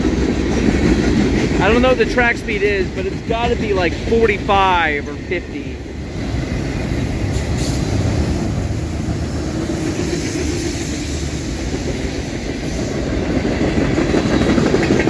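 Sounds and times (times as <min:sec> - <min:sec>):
freight train wheels on rails: 0:00.0 - 0:15.0.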